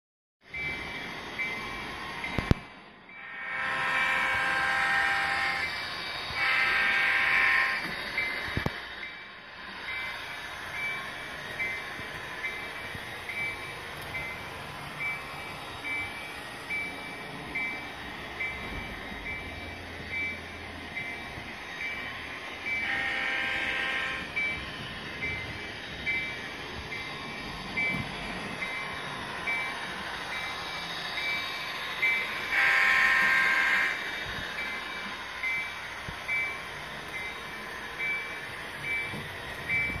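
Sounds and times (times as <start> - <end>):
model locomotive bell ringing: 0.5 - 40.0
model locomotive horn: 3.2 - 7.9, 22.8 - 24.4, 32.4 - 34.1.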